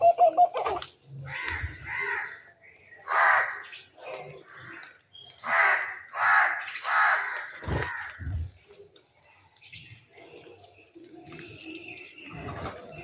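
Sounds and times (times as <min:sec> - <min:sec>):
crow cawing: 0:01.3 - 0:02.4, 0:03.1 - 0:03.7, 0:04.4 - 0:08.2.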